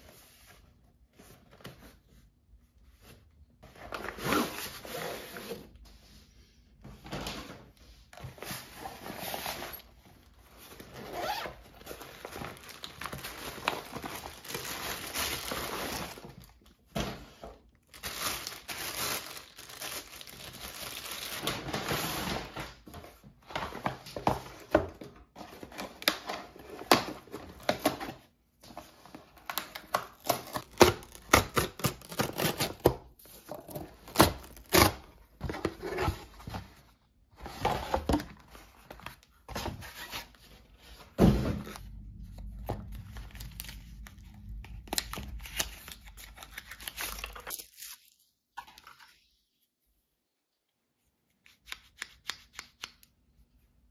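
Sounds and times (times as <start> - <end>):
packaging rustling: 9.0 - 16.6, 17.8 - 22.6.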